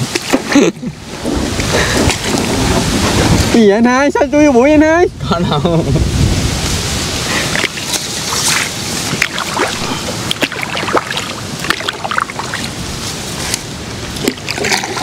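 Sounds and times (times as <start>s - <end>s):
water splashing from paddling: 0.0s - 3.5s, 7.3s - 12.8s, 13.5s - 15.0s
wind on microphone: 0.0s - 15.0s.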